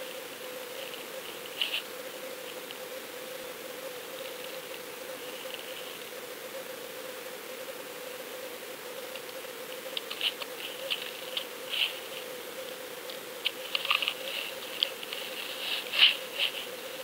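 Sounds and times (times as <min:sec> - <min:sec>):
steady underwater hum: 0:00.0 - 0:17.0
crackling clicks: 0:09.1 - 0:16.6.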